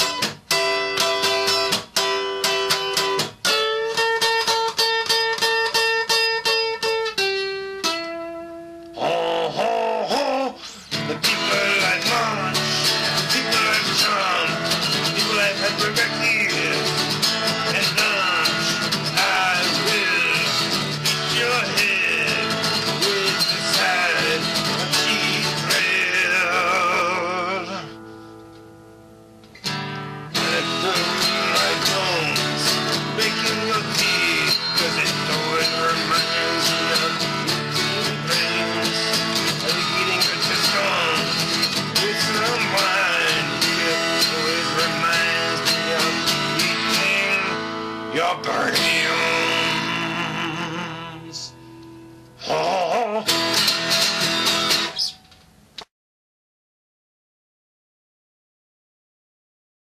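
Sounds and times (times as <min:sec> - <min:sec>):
acoustic guitar strumming: 0:00.0 - 0:55.4
man singing: 0:08.9 - 0:28.0, 0:30.3 - 0:51.6, 0:52.4 - 0:53.5.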